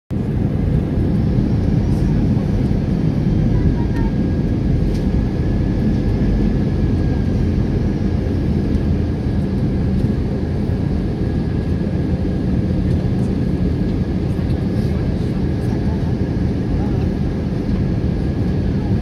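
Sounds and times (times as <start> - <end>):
airliner engines rumbling: 0.1 - 19.0.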